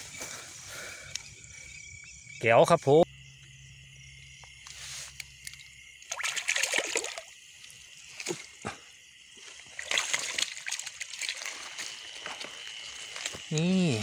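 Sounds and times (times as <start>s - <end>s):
fish thrashing and splashing: 6.1s - 7.3s, 9.6s - 12.1s.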